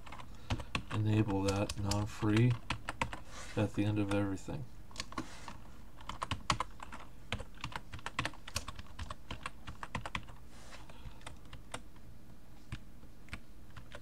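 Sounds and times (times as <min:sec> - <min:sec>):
computer keyboard typing: 0:00.0 - 0:03.2, 0:06.0 - 0:10.4, 0:11.0 - 0:11.9, 0:12.7 - 0:14.0.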